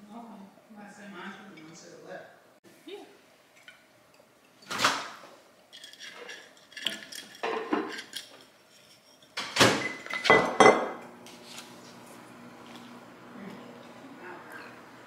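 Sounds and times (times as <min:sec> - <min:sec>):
dishes clattering and scraping: 0:05.7 - 0:11.1.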